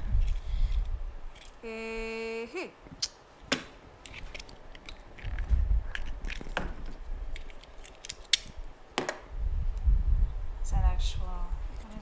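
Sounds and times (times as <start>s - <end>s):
plastic snapping: 3.0s - 9.2s.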